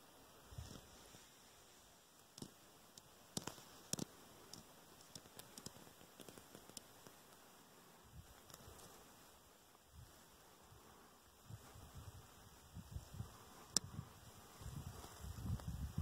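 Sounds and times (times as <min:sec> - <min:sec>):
clicks and rustles on rock: 0:02.2 - 0:07.5, 0:08.2 - 0:09.0.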